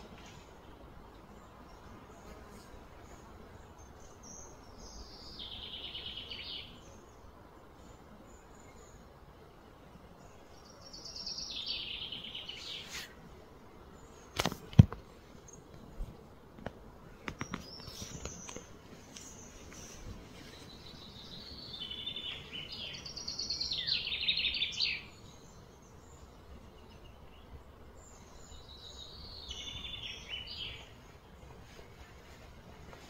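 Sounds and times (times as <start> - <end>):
birds chattering: 17.2 - 31.4.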